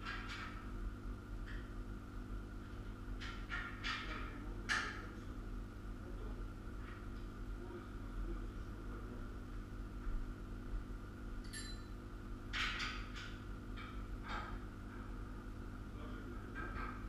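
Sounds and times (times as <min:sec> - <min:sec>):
steady low hum: 0:00.0 - 0:17.0
metal parts clinking: 0:11.4 - 0:11.9.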